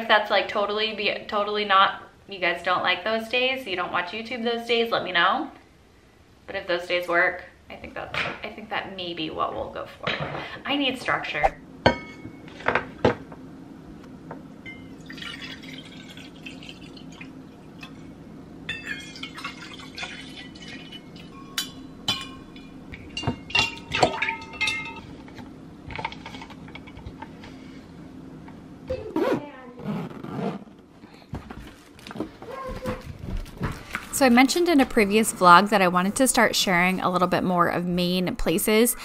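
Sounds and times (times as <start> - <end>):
steady low hum: 0.0 - 39.0
liquid pouring: 14.8 - 18.1, 18.8 - 21.7
metal clinks with ringing: 21.2 - 25.1.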